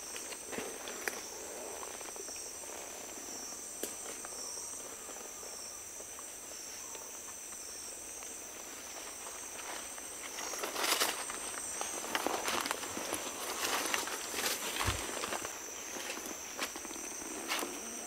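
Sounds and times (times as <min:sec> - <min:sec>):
high-pitched insect chorus: 0:00.0 - 0:18.0
footsteps on forest floor: 0:08.1 - 0:17.9.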